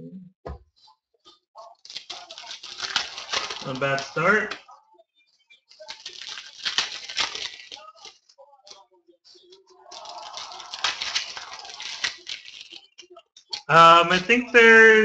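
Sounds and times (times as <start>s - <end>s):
plastic wrapper crinkling: 1.6s - 4.7s, 5.7s - 8.8s, 9.8s - 15.0s
cards rustling and clicking: 1.8s - 4.7s, 5.7s - 8.8s, 9.4s - 15.0s.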